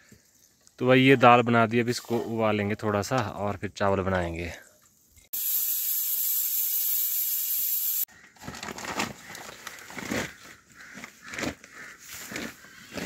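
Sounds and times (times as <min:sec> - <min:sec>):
steady hiss: 0:05.3 - 0:08.1.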